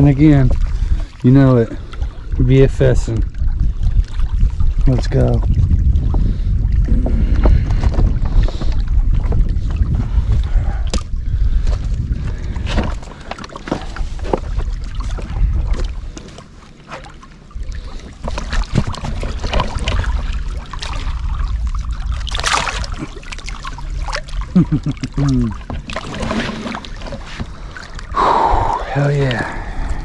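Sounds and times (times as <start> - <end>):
wind buffeting microphone: 0.0 - 16.4, 17.5 - 30.0
water sloshing against rocks: 0.0 - 30.0
short splash: 18.2 - 27.4.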